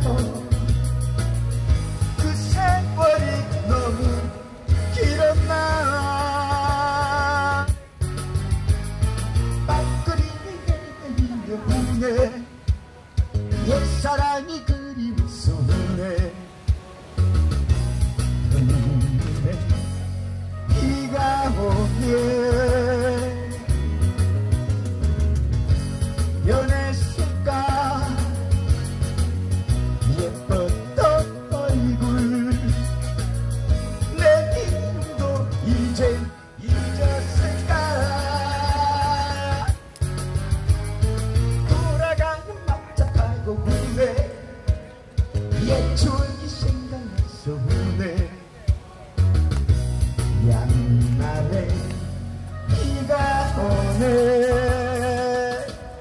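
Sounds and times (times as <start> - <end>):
person singing: 0.0 - 0.9, 2.2 - 8.0, 9.5 - 17.0, 20.6 - 24.4, 26.4 - 28.7, 30.0 - 40.1, 41.6 - 56.0
bass: 0.0 - 56.0
guitar: 0.0 - 56.0
live amplified band music: 0.0 - 56.0.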